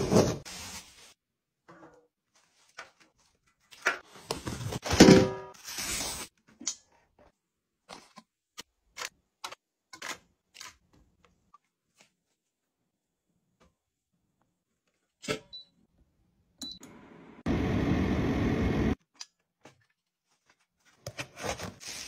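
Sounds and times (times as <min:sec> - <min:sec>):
rubbing and scraping handling noise: 0:19.6 - 0:22.0.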